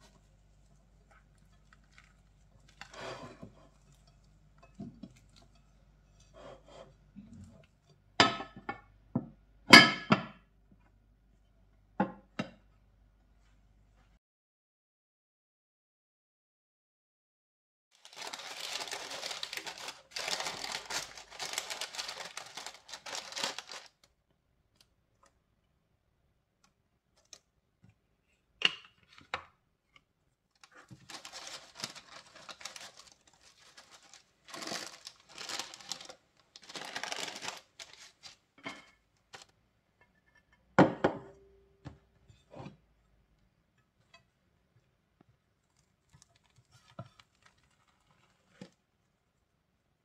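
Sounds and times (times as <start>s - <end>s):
parchment paper crinkling: 0.0s - 5.6s, 18.0s - 24.1s, 30.5s - 38.6s, 39.2s - 39.5s, 45.6s - 48.8s.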